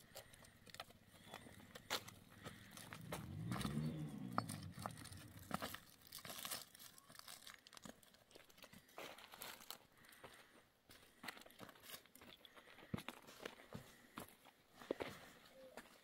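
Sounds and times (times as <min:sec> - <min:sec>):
footsteps on stone rubble: 0:00.0 - 0:16.0
dry branches crackling: 0:00.1 - 0:10.2.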